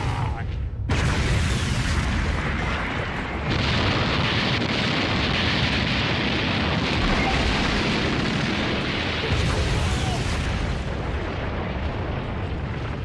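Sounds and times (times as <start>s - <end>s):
rumbling explosion: 0.0s - 13.0s.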